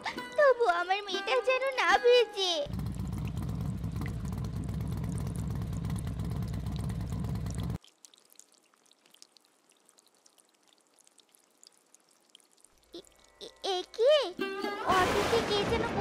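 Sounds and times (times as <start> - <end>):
auto-rickshaw engine running: 2.7 - 7.8
water drips: 2.7 - 14.2
heavy rain: 15.0 - 16.0.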